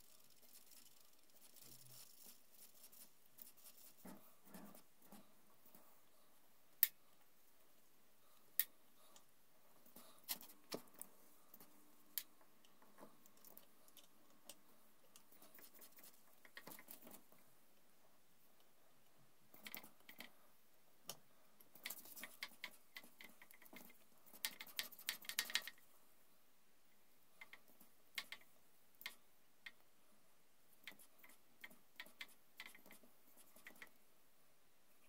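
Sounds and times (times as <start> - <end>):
faint metallic clicks and taps: 8.4 - 17.9, 27.3 - 29.9.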